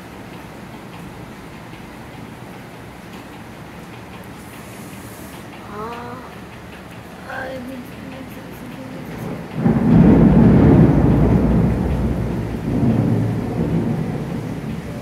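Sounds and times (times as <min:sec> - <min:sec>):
thunder rumbling: 0:07.1 - 0:15.0.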